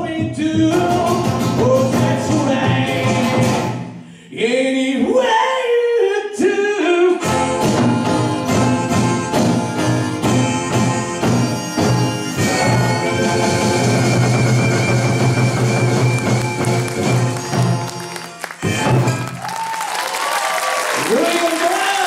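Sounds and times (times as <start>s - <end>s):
slide guitar: 0.4s - 3.9s, 7.2s - 19.4s.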